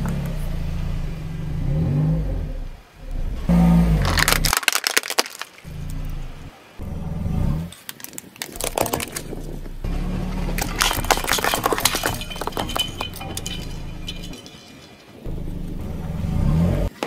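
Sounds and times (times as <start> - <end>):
car rumbling: 0.0 - 4.6, 5.4 - 17.0
plastic cracking under car tyre: 4.0 - 6.0, 7.7 - 9.7.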